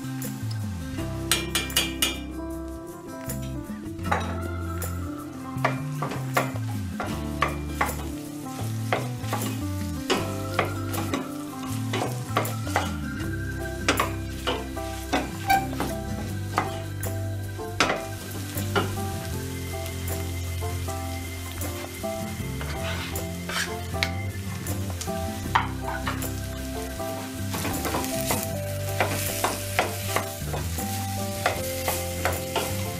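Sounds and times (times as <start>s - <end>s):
food sizzling in a pot: 0.0s - 32.9s
wooden spoon scraping a pot: 14.4s - 16.8s, 22.6s - 24.0s.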